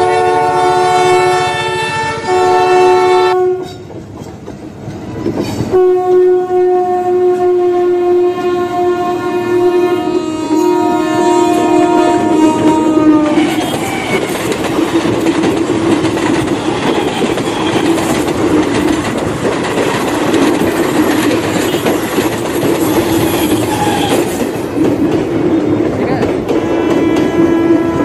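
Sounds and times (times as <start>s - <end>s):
toy train rattling on track: 13.4s - 25.0s.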